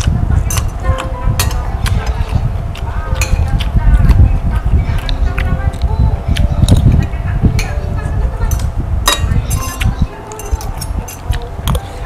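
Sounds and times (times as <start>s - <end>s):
low rumble: 0.0s - 12.0s
cutlery clinking on plates: 0.5s - 0.8s, 8.5s - 11.9s.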